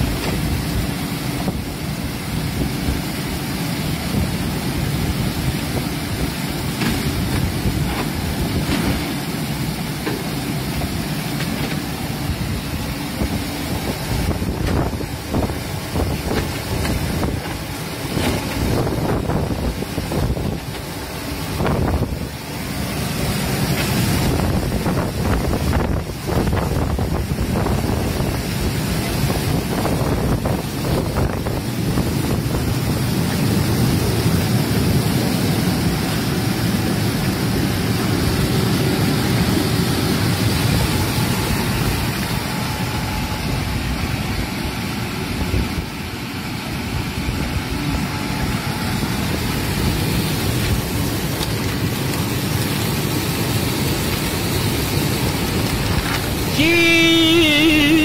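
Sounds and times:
water churning and bubbling: 0.0 - 58.0
wind buffeting microphone: 12.1 - 52.5.

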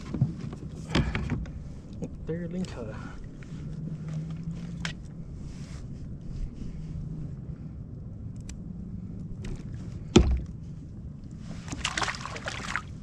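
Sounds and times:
low steady hum: 0.0 - 13.0
water splashing: 11.5 - 13.0.

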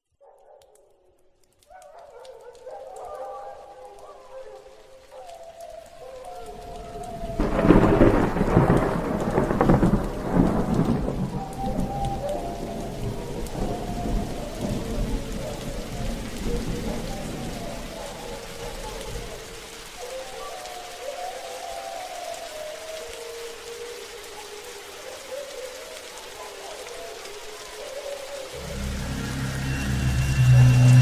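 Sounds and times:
steady rain: 0.0 - 31.0
thunder rumbling: 6.5 - 19.4, 28.5 - 31.0
faint wavering tone: 28.6 - 31.0.

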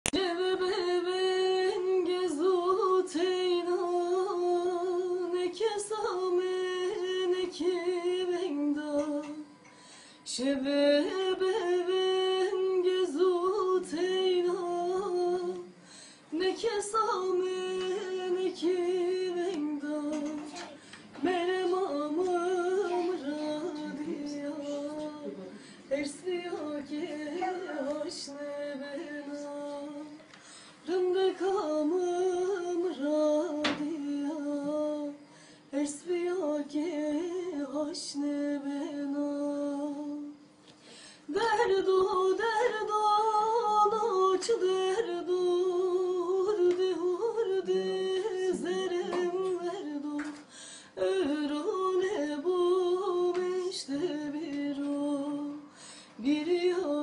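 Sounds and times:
woman singing solo: 10.3 - 30.2, 41.3 - 57.0.

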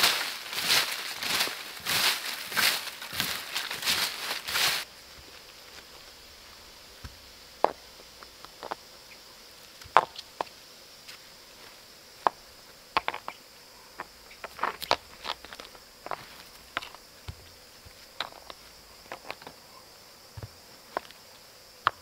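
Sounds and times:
high insect buzz: 0.0 - 22.0
rocks clacking and scraping: 14.0 - 17.0, 18.2 - 19.6.

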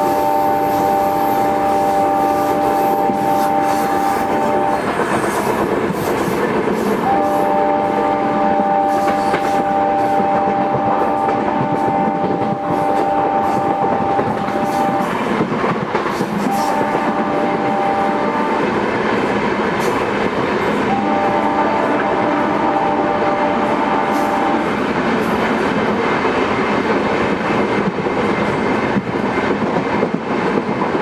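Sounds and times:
diesel locomotive horn: 0.0 - 15.5, 16.2 - 18.9, 20.6 - 25.8
train rumbling on rails: 0.0 - 31.0.

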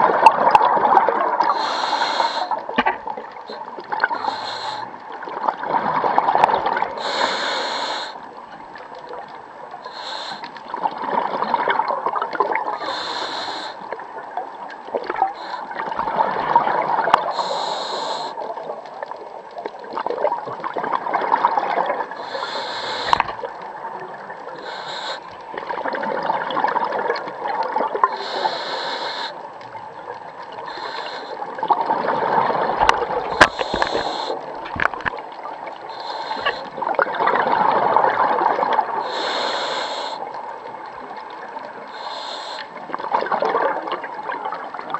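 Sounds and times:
exhaled bubbles gurgling: 0.0 - 44.9
regulator inhale hiss: 1.4 - 2.7, 3.5 - 5.0, 6.9 - 8.3, 9.8 - 10.6, 12.8 - 14.0, 15.3 - 16.0, 17.3 - 18.6, 22.1 - 23.4, 24.5 - 25.4, 28.1 - 29.5, 30.5 - 31.6, 33.3 - 34.6, 35.7 - 36.8, 39.0 - 40.4, 41.8 - 42.9.

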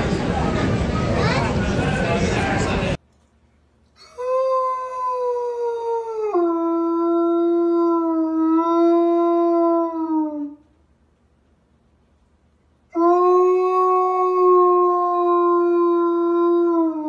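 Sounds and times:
dog howling: 13.0 - 17.0.

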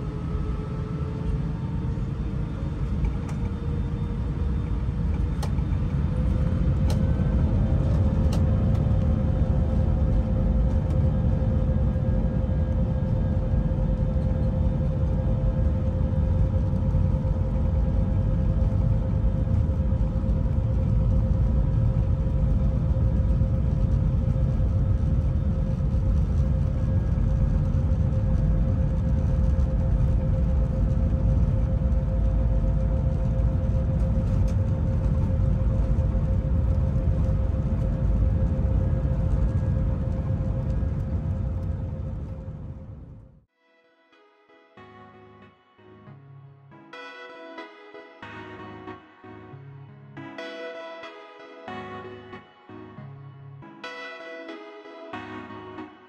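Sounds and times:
airliner engine rumble: 0.0 - 43.5
steady whine: 0.0 - 43.5.

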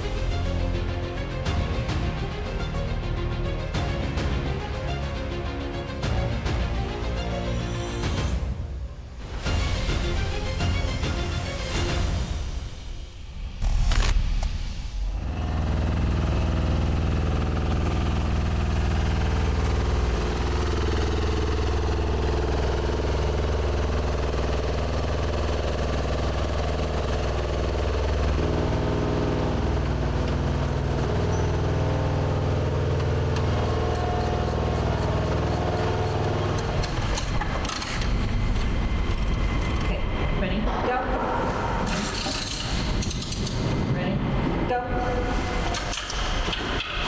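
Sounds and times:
truck engine running: 15.0 - 40.2.

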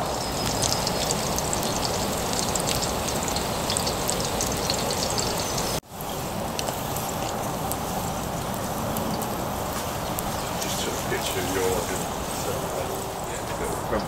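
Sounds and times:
bread sizzling in grease: 0.0 - 14.0
sausages and bacon sizzling: 0.0 - 14.0.

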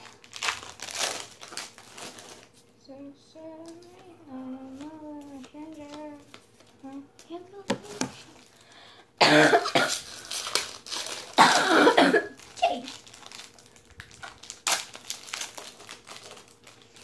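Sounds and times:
foil wrappers crinkling: 0.0 - 2.7, 4.6 - 6.8, 7.8 - 9.0, 9.7 - 17.0
person coughing: 9.2 - 10.1, 11.4 - 12.9.

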